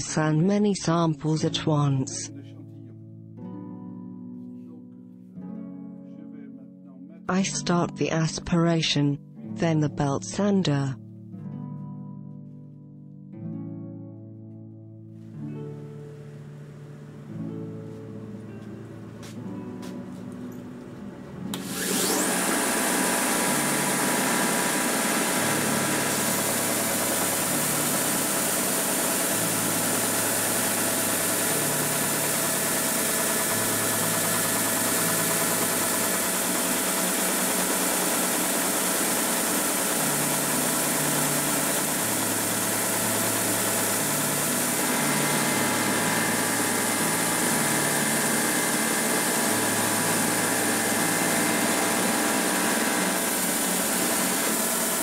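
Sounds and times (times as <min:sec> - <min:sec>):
belt sander whining: 0:21.5 - 0:55.0.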